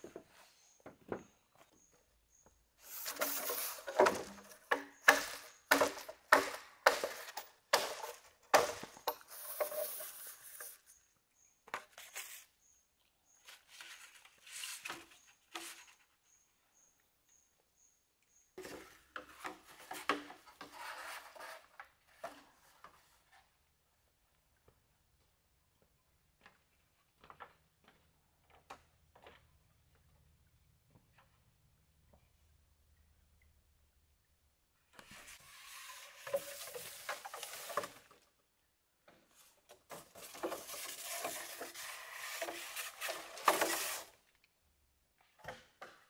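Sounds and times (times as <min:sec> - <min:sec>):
bamboo poles knocking: 0:03.1 - 0:09.8.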